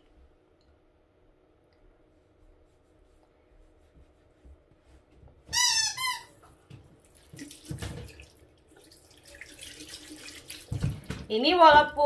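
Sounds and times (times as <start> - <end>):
loud short squeaks: 5.5 - 6.4
water from tap splashing into sink: 7.0 - 11.3.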